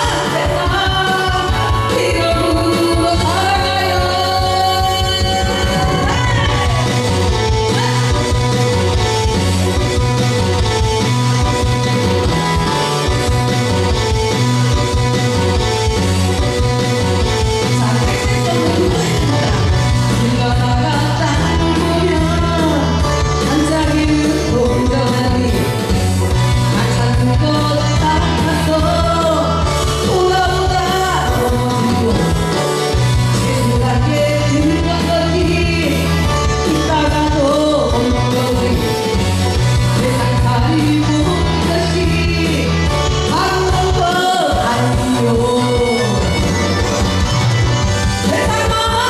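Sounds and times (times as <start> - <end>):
woman singing rock song: 0.0 - 8.6, 17.5 - 46.8, 48.2 - 49.0
instrumental accompaniment with bass: 0.0 - 49.0.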